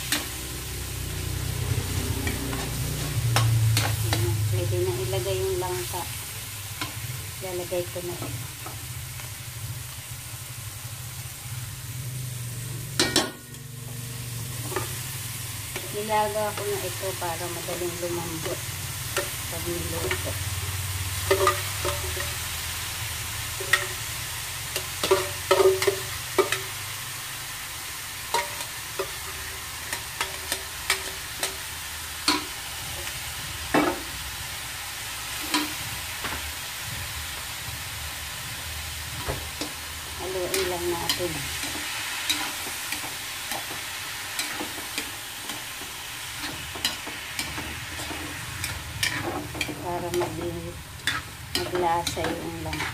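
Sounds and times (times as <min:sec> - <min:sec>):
food sizzling in a wok: 0:00.0 - 0:52.9
metal spatula clinking on pan: 0:21.2 - 0:22.4
pot clattering against a wok: 0:21.2 - 0:22.4, 0:24.7 - 0:26.8.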